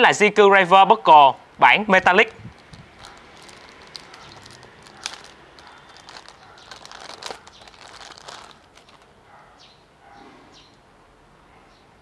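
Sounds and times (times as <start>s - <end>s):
plastic bag crinkling: 2.2s - 9.2s.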